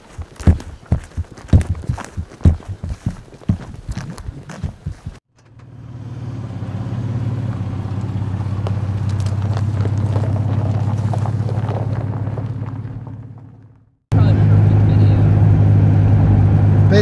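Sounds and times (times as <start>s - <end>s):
footsteps on frozen ground: 0.0s - 5.2s, 7.6s - 13.5s
vehicle engine humming: 0.0s - 17.0s.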